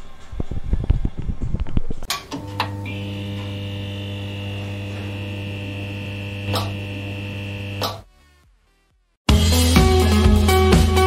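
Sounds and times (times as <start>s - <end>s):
electric buzzing hum: 2.3s - 8.0s
higher tone: 2.4s - 8.0s.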